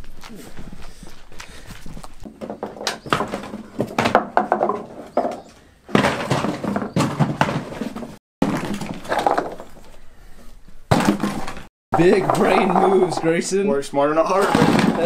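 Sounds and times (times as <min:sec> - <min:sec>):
golf balls clattering: 0:02.2 - 0:10.1, 0:10.9 - 0:15.0.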